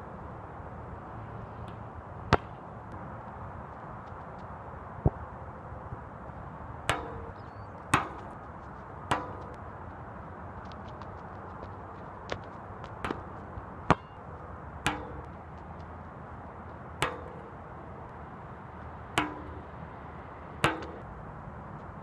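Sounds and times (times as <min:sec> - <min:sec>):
low background noise: 0:00.0 - 0:22.0
basketball bouncing on hard court: 0:06.9 - 0:08.4, 0:09.1 - 0:09.6, 0:10.6 - 0:15.9, 0:17.0 - 0:17.6.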